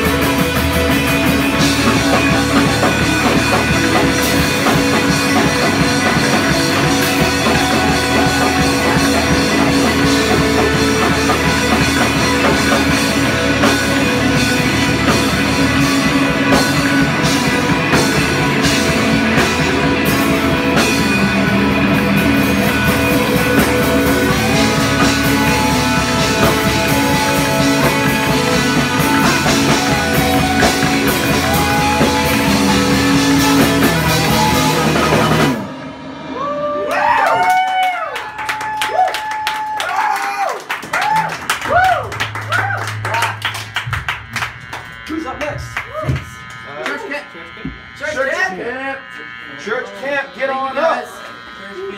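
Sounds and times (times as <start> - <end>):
rock music with electric guitar: 0.0 - 37.4.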